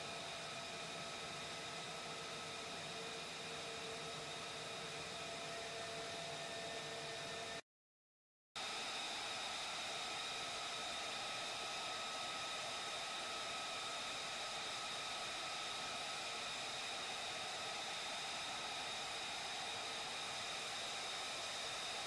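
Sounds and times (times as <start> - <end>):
jet engine whine: 0.0 - 7.6.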